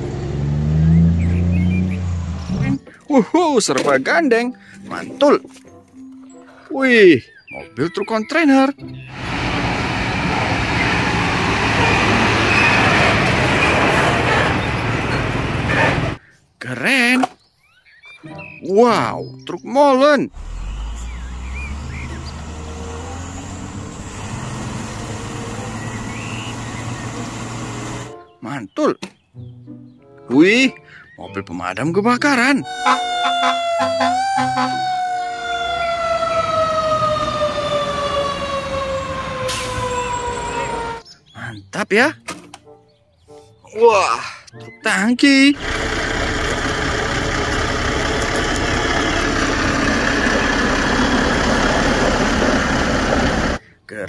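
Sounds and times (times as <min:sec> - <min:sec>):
truck diesel engine: 0:00.0 - 0:03.1, 0:09.0 - 0:16.2, 0:20.3 - 0:28.1, 0:32.6 - 0:41.0, 0:45.5 - 0:53.6
road traffic noise: 0:00.0 - 0:03.9, 0:08.9 - 0:16.4, 0:20.3 - 0:28.4, 0:32.6 - 0:41.6, 0:45.5 - 0:53.8
horn blast: 0:32.6 - 0:37.4.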